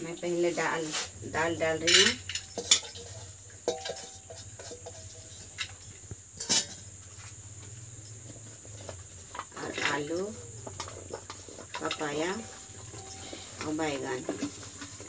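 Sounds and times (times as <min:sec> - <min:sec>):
crickets trilling: 0:00.0 - 0:15.0
metal cookware clinking: 0:01.3 - 0:07.0, 0:09.4 - 0:15.0.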